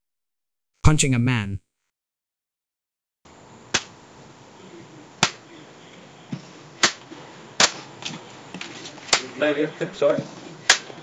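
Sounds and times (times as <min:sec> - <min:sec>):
punch impacts: 0:05.2 - 0:05.4, 0:06.8 - 0:07.0.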